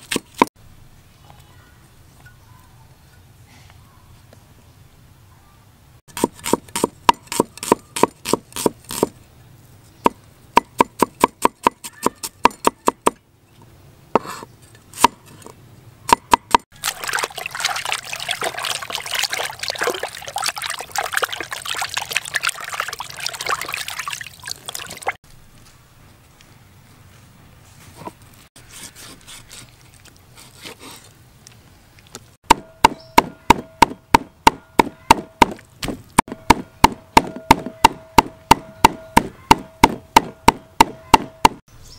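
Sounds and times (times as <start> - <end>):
water pouring: 16.7 - 25.2.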